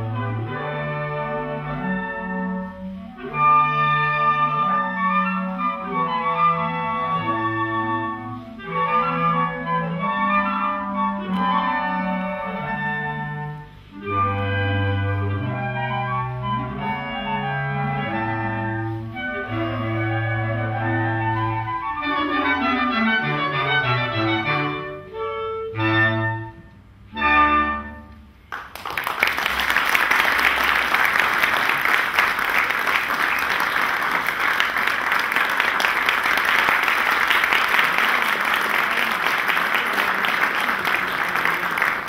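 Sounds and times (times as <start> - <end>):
woodwind ensemble playing: 0.0 - 28.4, 29.1 - 42.0
audience applause: 28.5 - 42.0.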